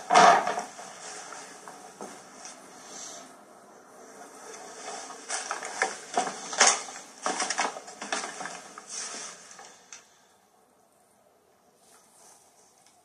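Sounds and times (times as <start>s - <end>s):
litter crackling and rustling: 0.0s - 3.3s, 4.0s - 10.3s.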